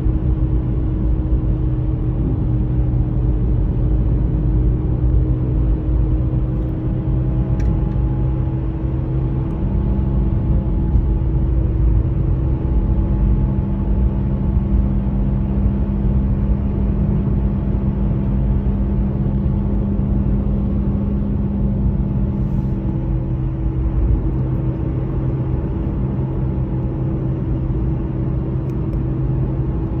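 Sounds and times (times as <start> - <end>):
car engine and road noise: 0.0 - 30.0
hum: 0.0 - 30.0.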